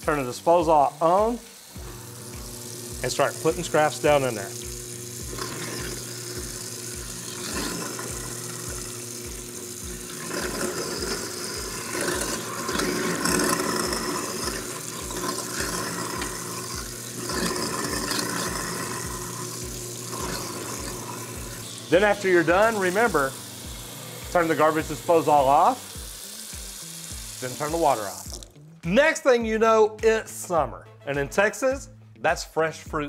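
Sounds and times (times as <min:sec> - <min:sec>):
tap water pouring into sink: 0:00.8 - 0:28.5
garbage disposal grinding scraps: 0:01.9 - 0:25.5.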